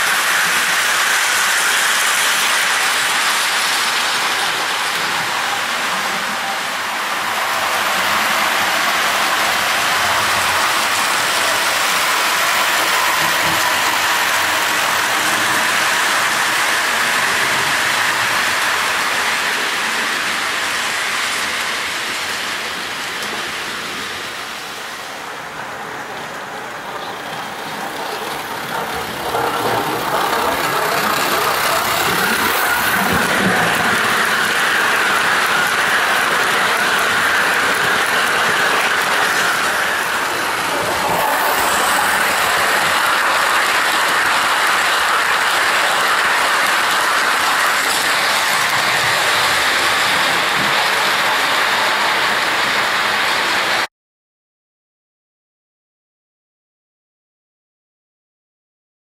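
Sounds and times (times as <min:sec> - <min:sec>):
model train wheels rattling: 0:07.2 - 0:21.9, 0:27.0 - 0:53.8.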